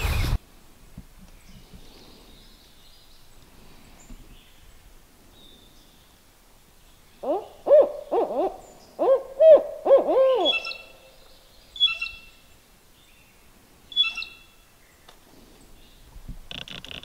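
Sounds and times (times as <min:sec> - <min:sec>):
owl hooting: 0:07.2 - 0:11.1
short high bird calls: 0:07.2 - 0:12.4, 0:13.9 - 0:14.6.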